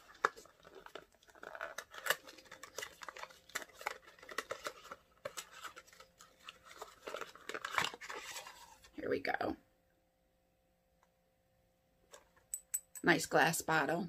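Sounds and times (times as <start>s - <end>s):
cardboard packaging being opened: 0.0s - 9.0s.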